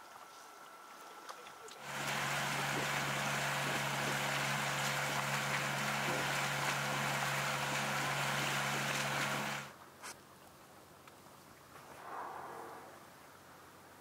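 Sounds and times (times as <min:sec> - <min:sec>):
wind: 0:00.0 - 0:14.0
rushing water: 0:01.6 - 0:09.7
boat motor humming: 0:01.8 - 0:09.7.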